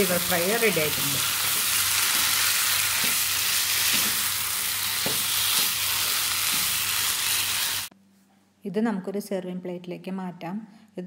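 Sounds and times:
liver sizzling in frying pan: 0.0s - 7.9s
spatula knocking and scraping pan: 1.4s - 4.3s, 5.0s - 5.8s.

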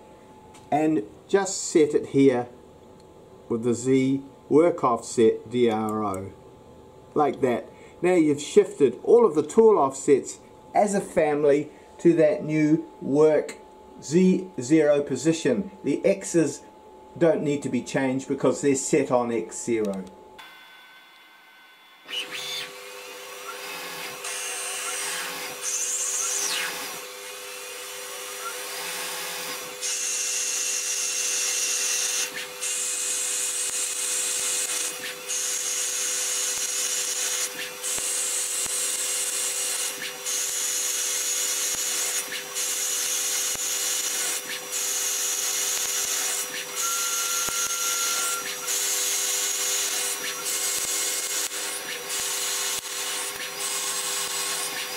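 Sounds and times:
lathe spindle humming: 20.4s - 54.9s.

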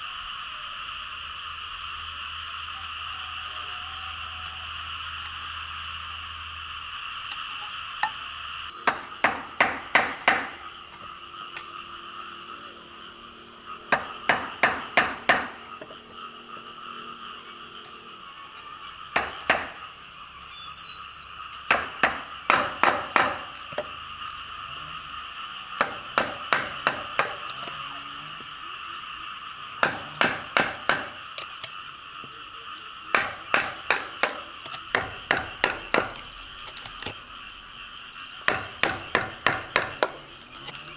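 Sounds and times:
animal chorus: 0.0s - 8.9s, 9.5s - 22.6s, 23.4s - 40.9s
mallet striking chisel: 8.9s - 10.6s, 13.9s - 15.5s, 21.7s - 23.9s, 25.8s - 27.4s, 29.8s - 31.2s, 33.1s - 36.2s, 38.5s - 40.3s.

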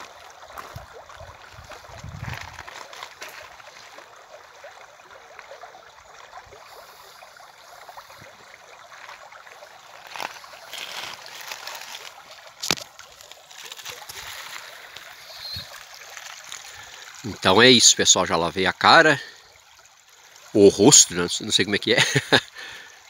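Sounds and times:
river water running: 0.0s - 23.0s
water splashing by hand: 7.8s - 17.4s.

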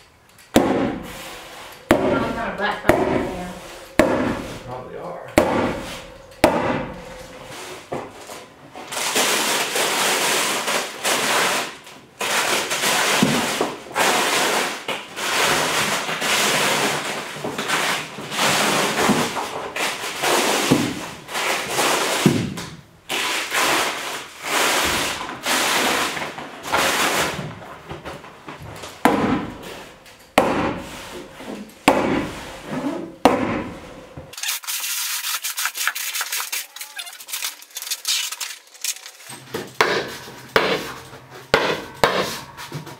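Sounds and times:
tar paper crinkling against wall: 34.4s - 41.2s.

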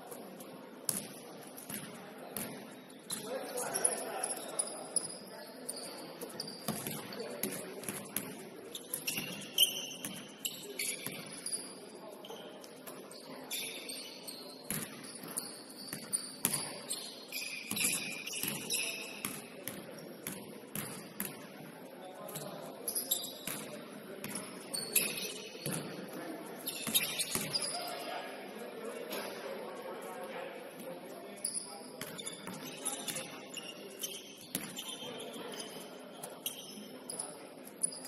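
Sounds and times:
short high shoe squeaks: 8.7s - 12.6s, 13.5s - 19.2s, 24.7s - 25.8s, 26.7s - 27.8s, 31.4s - 38.0s.

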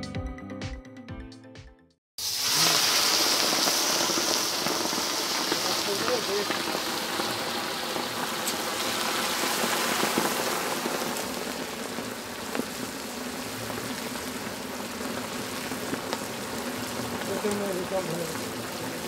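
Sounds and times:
fish sizzling in hot oil: 2.2s - 19.0s
sharp oil pops: 8.4s - 8.6s.

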